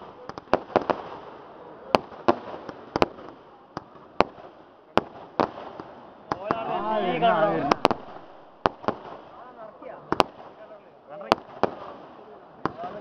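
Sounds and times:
fireworks crackling hiss: 0.0 - 12.3
firework bangs: 0.2 - 13.0.

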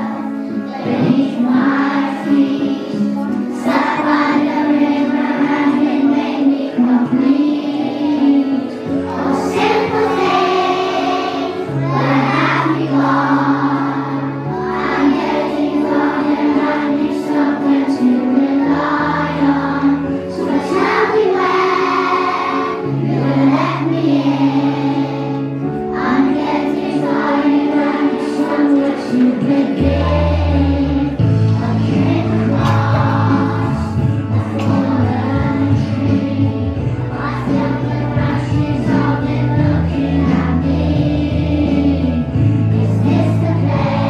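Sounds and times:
children singing together: 0.0 - 44.0
held low backing notes: 9.1 - 44.0.

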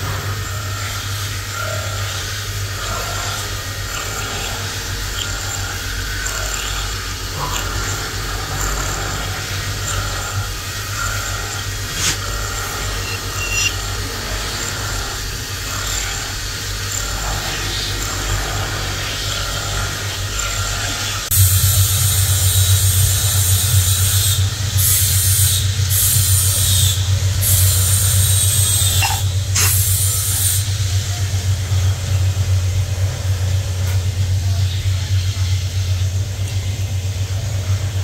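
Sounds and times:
low hum: 0.0 - 38.0
milling machine cutting metal: 0.0 - 38.0
loud hiss: 21.3 - 32.4.

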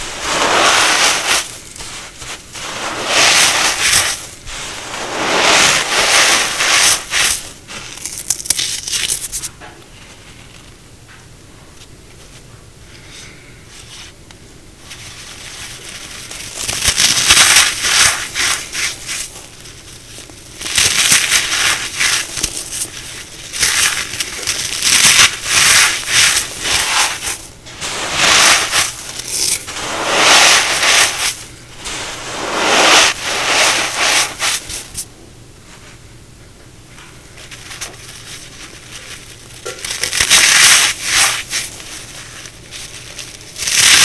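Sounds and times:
brittle pieces crunching: 5.9 - 9.5, 15.2 - 27.5, 28.1 - 29.8, 37.4 - 44.0.

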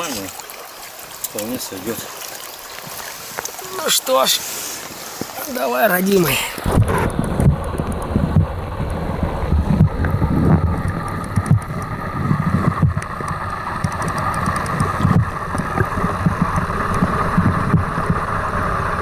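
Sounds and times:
stream water running: 0.0 - 19.0
wind buffeting microphone: 6.5 - 19.0.

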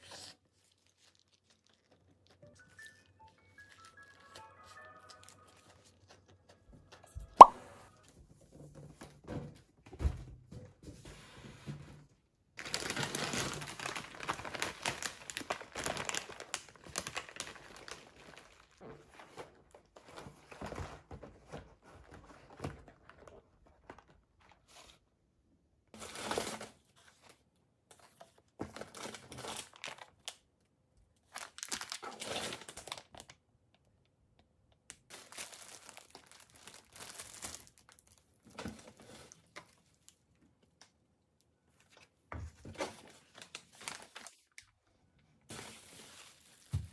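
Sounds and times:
plastic bag crinkling: 12.6 - 19.2, 31.3 - 33.2, 35.1 - 39.9, 43.2 - 44.6.

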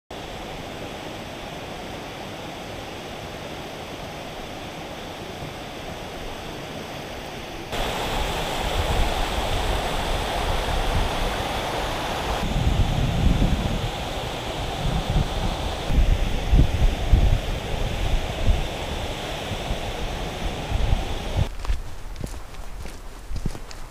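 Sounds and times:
wind buffeting microphone: 7.7 - 23.9.

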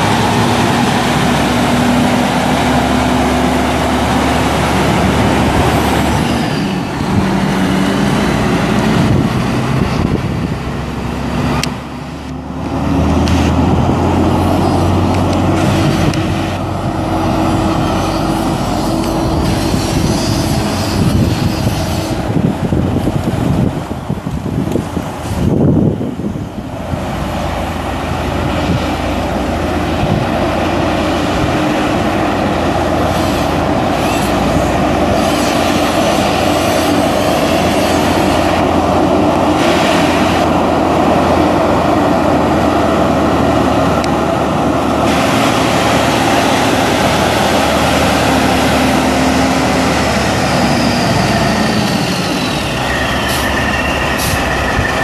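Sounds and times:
diesel truck engine running: 0.0 - 55.0
high whine: 28.3 - 55.0.

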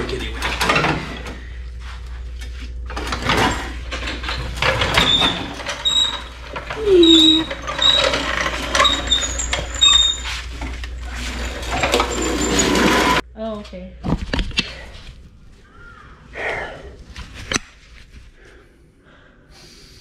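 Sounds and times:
metal clanks and knocks: 0.0 - 1.4, 2.9 - 13.2
short high squeaks: 4.8 - 13.2.

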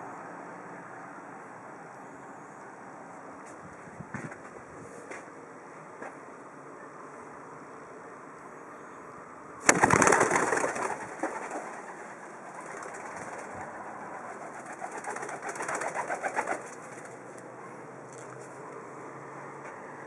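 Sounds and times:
dove wings clapping: 9.6 - 17.5
rapid wingbeats: 9.6 - 17.5.

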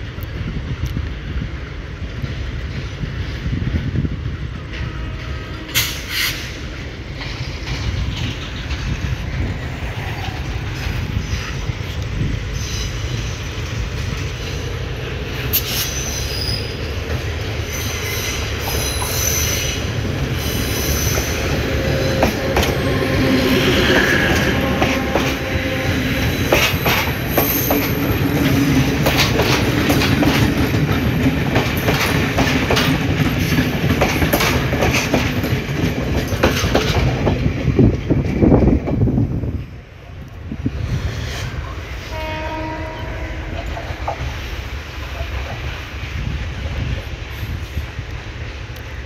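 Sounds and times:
train rumble: 0.0 - 49.0
wheels clicking over rail joints: 4.3 - 12.2, 16.6 - 39.4
wheel squeal: 12.5 - 13.5, 15.5 - 16.9, 17.7 - 22.0.

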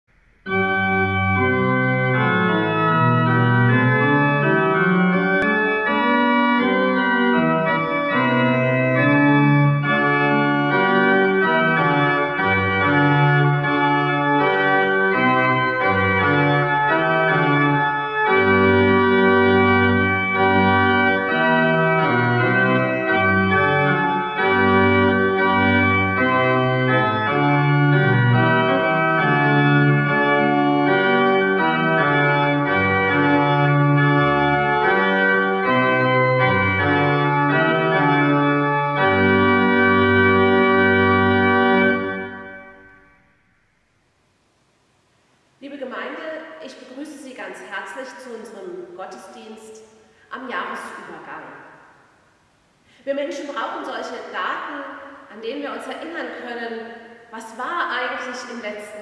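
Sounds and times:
pipe organ chords: 0.1 - 43.8.

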